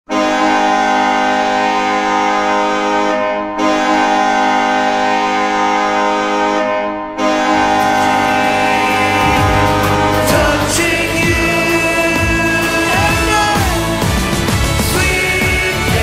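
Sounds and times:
ice hockey goal horn blasts: 0.1 - 11.9.

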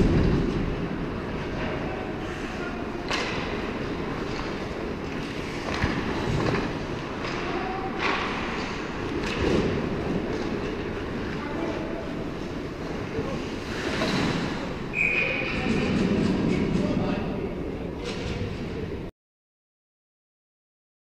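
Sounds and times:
steady rumbling noise: 0.0 - 19.1
hockey sticks and puck clacking: 3.0 - 11.4.

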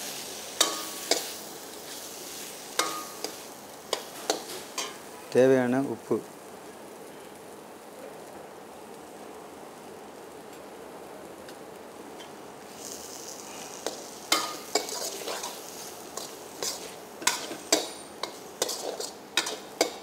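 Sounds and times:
frying sizzle: 0.0 - 20.0
spatula scraping a pan: 12.8 - 20.0.

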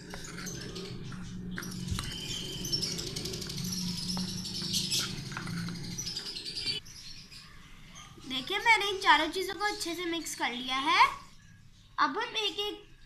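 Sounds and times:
high chirping: 0.0 - 8.4.

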